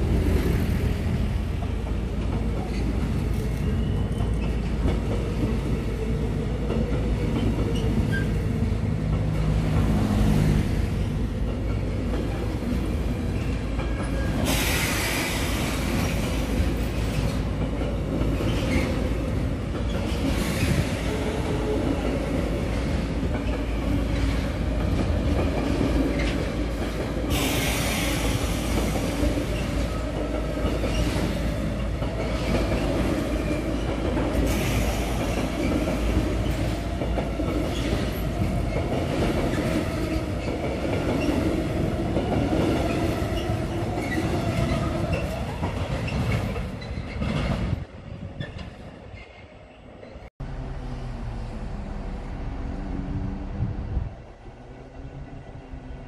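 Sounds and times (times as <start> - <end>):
freight train wheels rumbling on rail: 0.0 - 56.0.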